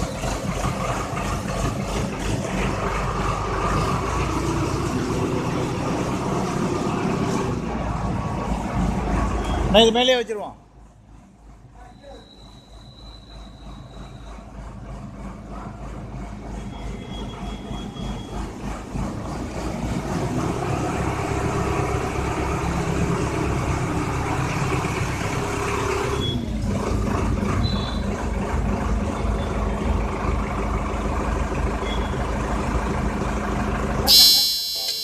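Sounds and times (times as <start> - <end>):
tractor engine running: 0.0 - 9.3.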